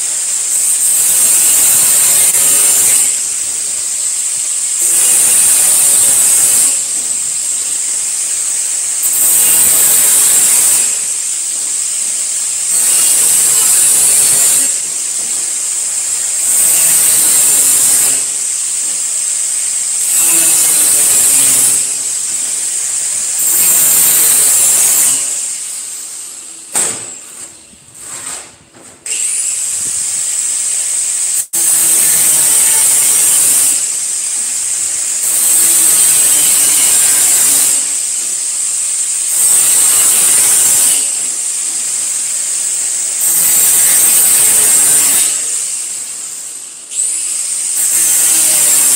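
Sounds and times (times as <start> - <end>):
angle grinder grinding sheet metal: 0.0 - 48.9.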